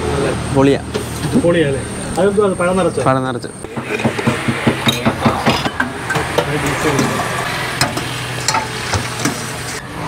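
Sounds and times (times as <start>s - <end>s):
steel utensils clinking: 4.8s - 9.8s.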